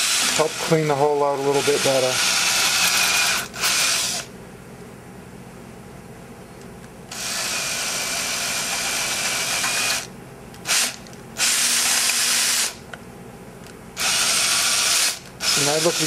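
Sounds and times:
electric drill drilling metal: 0.0 - 0.8, 1.4 - 4.3, 7.1 - 12.8, 14.0 - 16.0.

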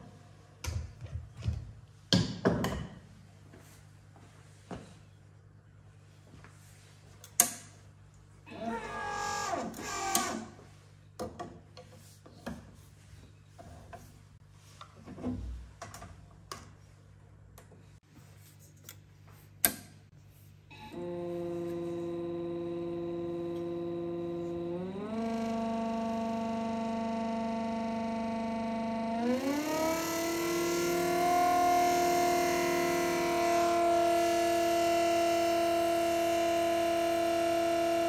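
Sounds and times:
pump humming: 20.9 - 38.0.

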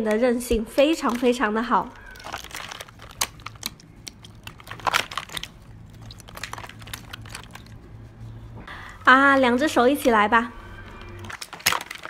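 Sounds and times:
hands kneading slime in ice water: 0.0 - 7.8.

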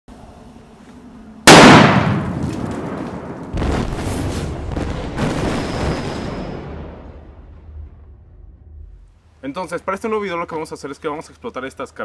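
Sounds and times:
firecracker bang: 1.5 - 7.2.

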